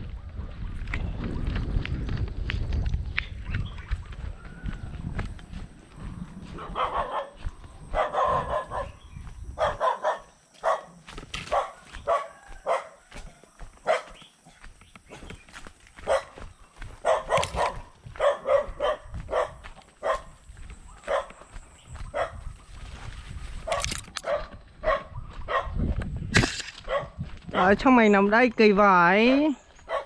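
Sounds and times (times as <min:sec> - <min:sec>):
dog barking: 0:06.5 - 0:09.0, 0:09.6 - 0:14.3, 0:16.0 - 0:20.4, 0:21.0 - 0:21.4, 0:22.0 - 0:22.5, 0:23.6 - 0:25.8, 0:26.8 - 0:27.8.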